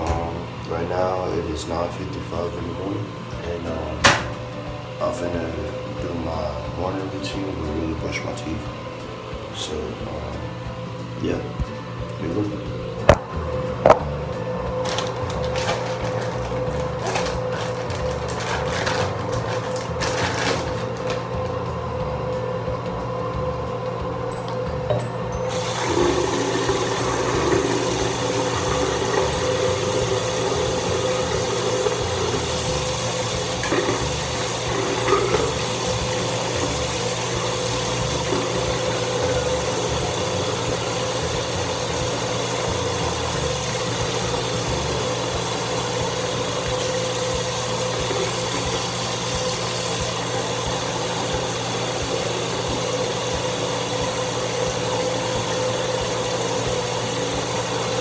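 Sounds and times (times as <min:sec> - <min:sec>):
tap water running: 0:00.0 - 0:58.0
low hum: 0:07.7 - 0:46.1.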